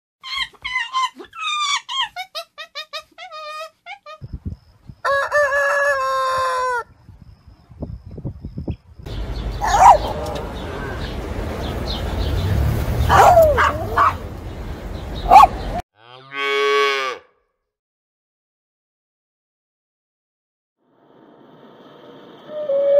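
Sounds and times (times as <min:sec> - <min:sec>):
rooster crowing: 0:05.0 - 0:06.9.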